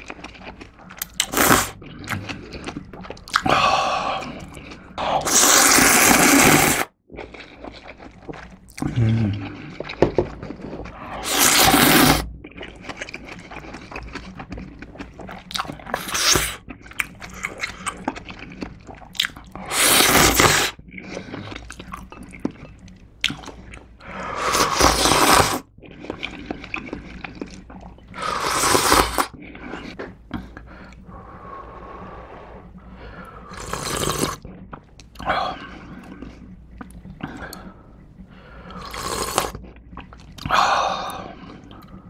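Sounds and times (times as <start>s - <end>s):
soft wet chewing: 0.0s - 5.8s, 7.1s - 42.0s
person slurping noodles: 0.8s - 14.1s, 15.2s - 22.1s, 24.0s - 34.5s, 38.4s - 39.6s.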